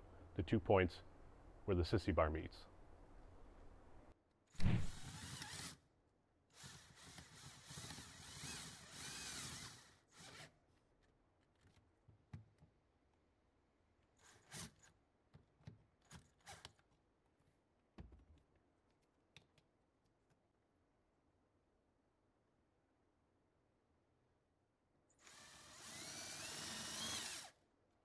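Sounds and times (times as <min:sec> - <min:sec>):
cordless drill drilling into steel: 0:04.8 - 0:05.8, 0:06.5 - 0:10.6, 0:25.2 - 0:27.6.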